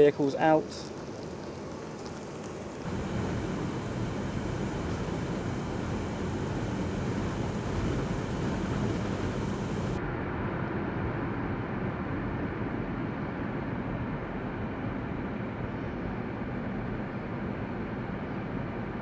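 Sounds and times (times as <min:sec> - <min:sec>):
car engine and tyre noise: 0:00.8 - 0:10.1.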